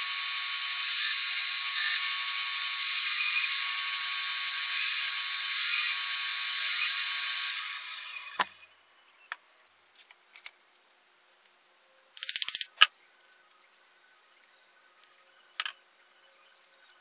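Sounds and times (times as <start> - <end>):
band saw whining: 0.0 - 8.6
sharp click: 12.2 - 12.9.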